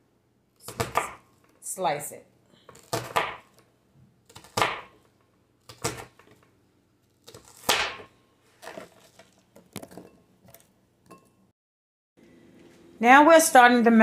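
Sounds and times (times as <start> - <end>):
knife slicing onion on board: 0.6 - 1.2, 2.7 - 3.6, 4.3 - 5.0, 5.6 - 6.3.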